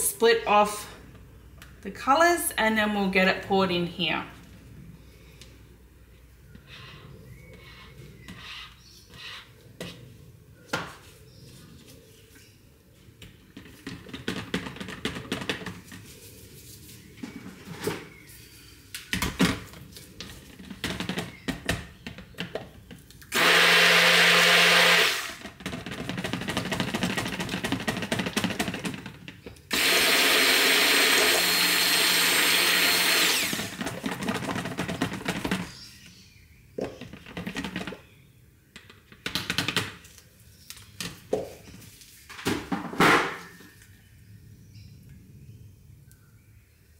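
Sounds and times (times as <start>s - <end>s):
stick blender running: 23.3s - 29.0s, 29.7s - 35.6s.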